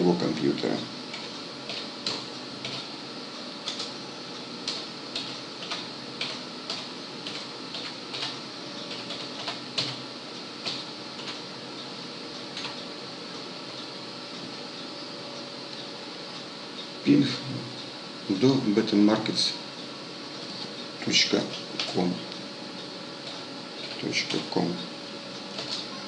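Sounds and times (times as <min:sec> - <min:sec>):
keyboard keys typed slowly: 0:01.1 - 0:02.9, 0:03.6 - 0:10.0, 0:10.6 - 0:11.4.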